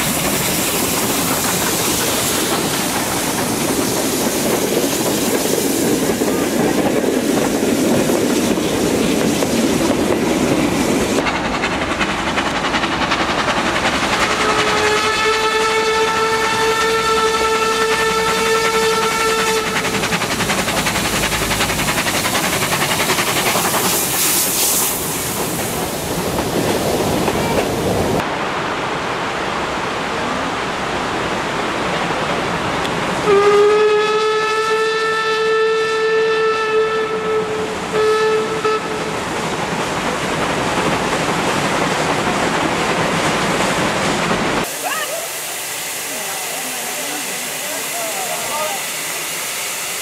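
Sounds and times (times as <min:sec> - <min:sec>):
steam locomotive exhaust: 0:00.0 - 0:28.2, 0:32.8 - 0:50.0
steam whistle blast: 0:14.3 - 0:19.9, 0:33.2 - 0:39.0.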